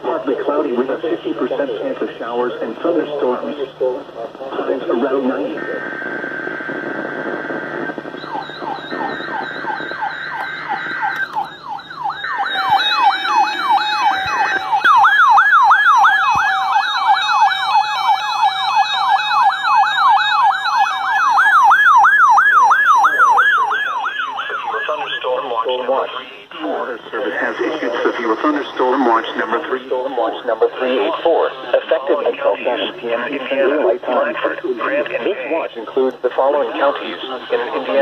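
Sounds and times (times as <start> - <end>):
electronic siren alarms wailing: 4.6 - 34.3
steady beep tone: 5.4 - 21.7, 26.6 - 31.1.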